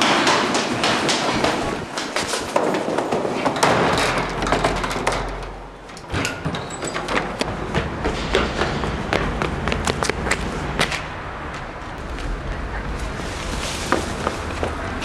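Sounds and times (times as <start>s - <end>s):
running footsteps on hard floor: 0.0s - 3.4s.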